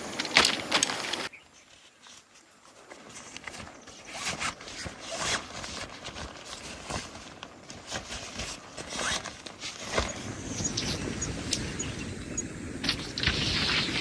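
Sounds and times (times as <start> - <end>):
nylon fabric rustling: 0.0 - 10.7
zipper pulls: 3.5 - 7.2, 7.8 - 10.1.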